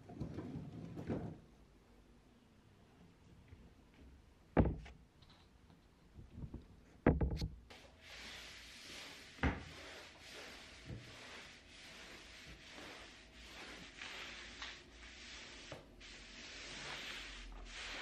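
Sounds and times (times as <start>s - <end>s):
sharp knocks and thumps: 6.4s - 7.6s
mop swishing over floor: 7.7s - 18.0s.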